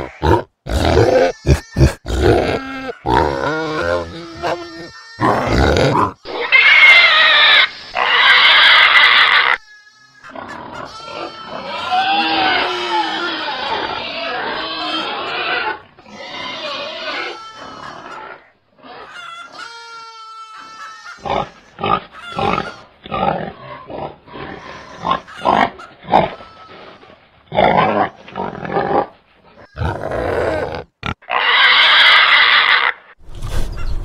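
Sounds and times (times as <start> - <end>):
pigs grunting: 0.0 - 9.6, 10.2 - 19.2, 21.2 - 33.0
pig squealing harshly: 0.0 - 33.2.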